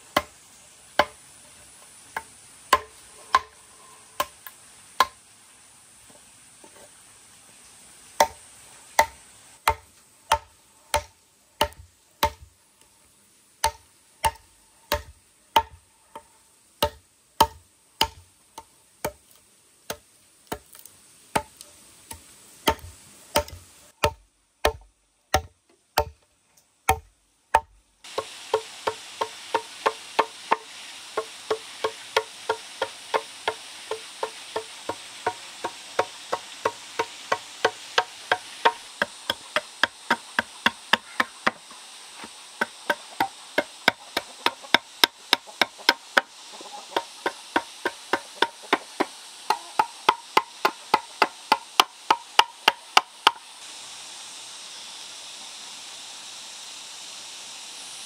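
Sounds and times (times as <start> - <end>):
metal tools striking wooden log: 1.0 - 1.2, 2.1 - 5.2, 9.0 - 12.5, 13.6 - 19.2, 22.6 - 26.2, 26.9 - 41.6, 42.6 - 46.3, 47.0 - 53.4
hammer tapping: 2.2 - 3.6, 13.6 - 19.2, 26.9 - 46.3, 47.0 - 53.4.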